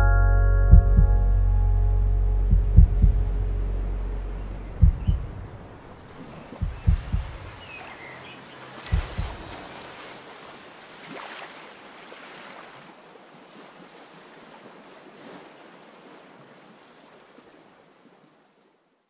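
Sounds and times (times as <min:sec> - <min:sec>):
rushing wash like surf: 0:05.4 - 0:13.0.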